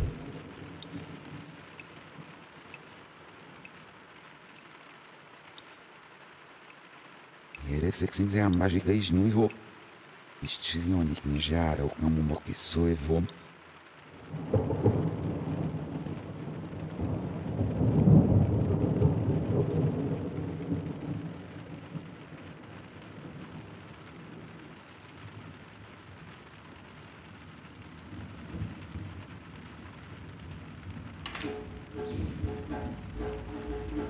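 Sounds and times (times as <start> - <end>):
rolling thunder: 0.0 - 1.6, 14.3 - 24.6, 30.2 - 34.0
steady rain: 0.0 - 34.0.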